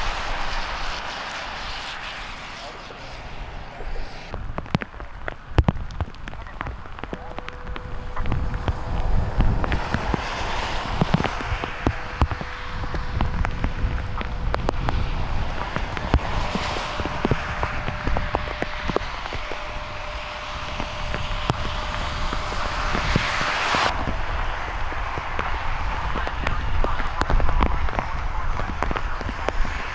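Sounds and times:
steady rain: 0.0s - 3.7s, 4.3s - 29.9s
wind rumbling on microphone: 0.0s - 29.9s
raindrops ticking close by: 4.3s - 22.9s.

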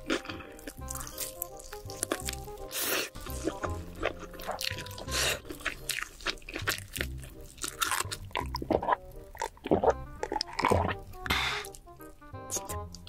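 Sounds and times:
chewing and wet mouth sounds: 0.0s - 13.0s
background music with a beat: 9.8s - 13.0s.

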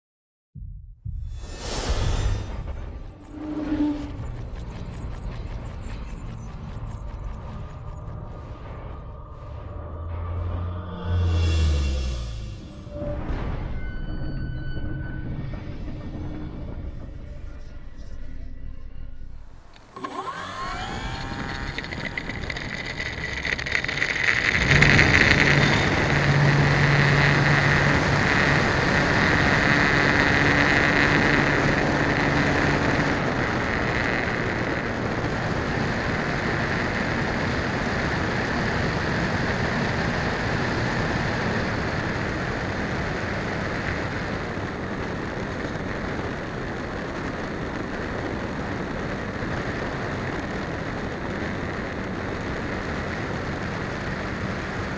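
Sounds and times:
electric motor and propeller whine: 19.6s - 54.9s
wind rushing over microphone: 20.8s - 54.9s.

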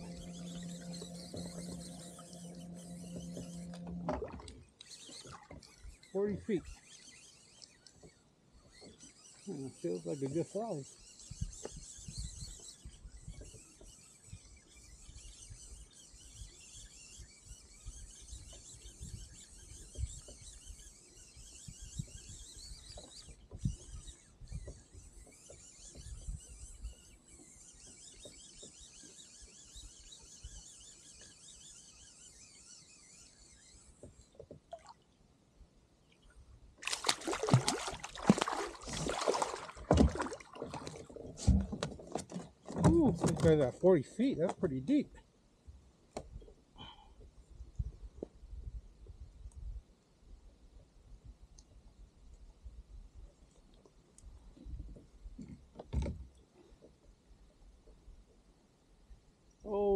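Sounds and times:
water trickling: 36.8s - 41.1s
fish splashing: 36.8s - 41.2s.

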